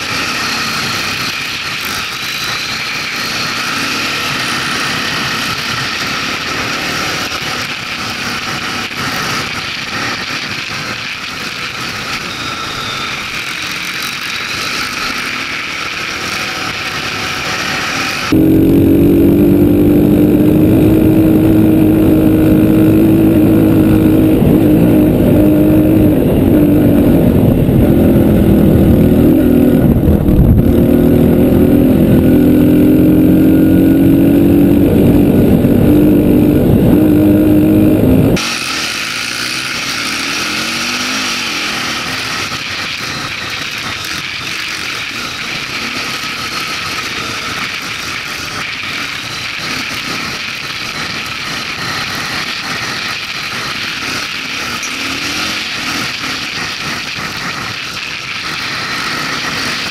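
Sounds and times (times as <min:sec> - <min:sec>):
dirt bike engine running: 0:00.0 - 0:59.9
wind noise: 0:18.2 - 0:38.4.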